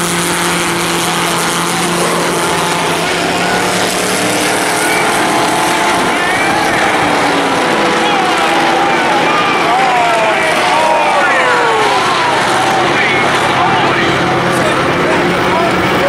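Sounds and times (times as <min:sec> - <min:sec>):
race car engines: 0:00.0 - 0:16.0
spectators' voices: 0:00.0 - 0:16.0.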